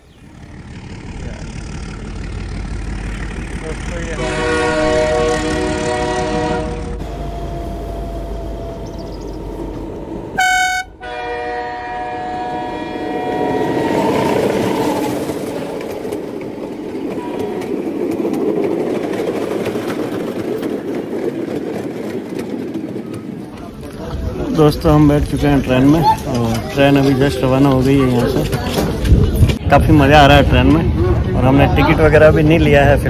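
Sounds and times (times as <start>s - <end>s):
train rumble and wheel clatter: 0.0s - 33.0s
locomotive horn: 4.0s - 8.8s, 10.3s - 15.9s, 17.2s - 17.7s.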